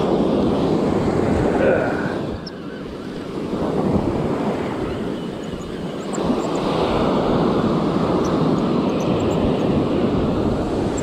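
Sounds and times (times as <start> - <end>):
surf washing up on beach: 0.0 - 11.0
wind rushing over microphone: 0.0 - 11.0.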